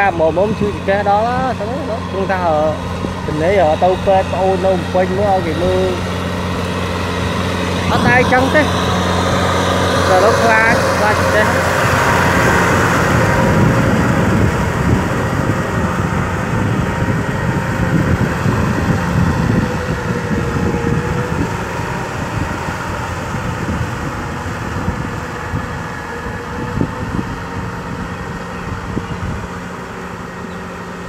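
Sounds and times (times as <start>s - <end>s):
tractor diesel engine under load: 0.0s - 31.0s.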